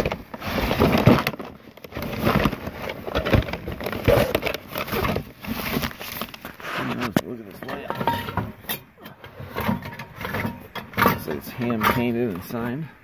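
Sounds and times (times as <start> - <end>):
items knocking and clunking: 0.0 - 12.7
cardboard and plastic rustling: 0.0 - 12.8.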